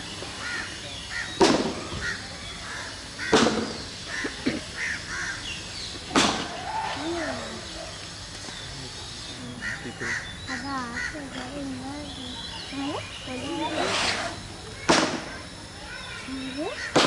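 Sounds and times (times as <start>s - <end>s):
faint bird calls: 0.0s - 17.0s
crows cawing: 0.4s - 3.4s, 4.1s - 5.5s, 9.6s - 11.3s.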